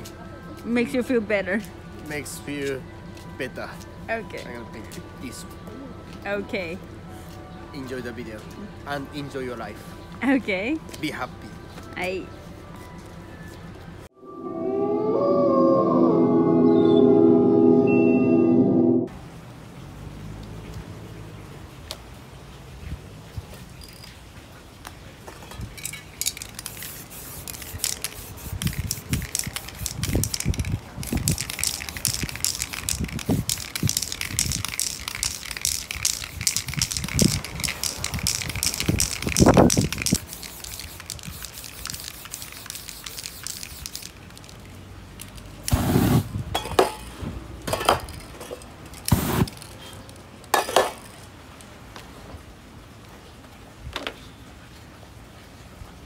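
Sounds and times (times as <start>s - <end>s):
spray paint can hissing: 26.2s - 44.7s, 45.6s - 46.3s, 49.0s - 49.7s
metal cans clinking: 47.7s - 49.7s, 50.5s - 51.2s.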